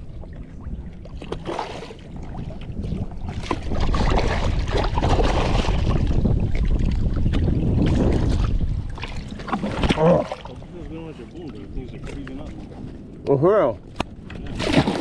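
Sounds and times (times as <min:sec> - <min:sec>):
wind buffeting microphone: 0:00.0 - 0:15.0
fish splashing in water: 0:01.2 - 0:02.5, 0:03.2 - 0:10.5, 0:14.5 - 0:15.0.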